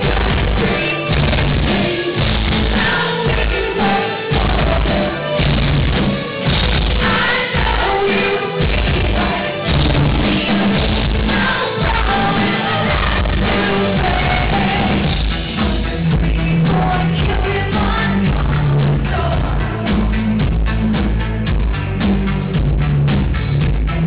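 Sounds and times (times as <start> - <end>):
woman singing into a microphone: 0.0 - 5.4, 6.9 - 15.2, 16.3 - 19.9
live rock band playing: 0.0 - 24.0.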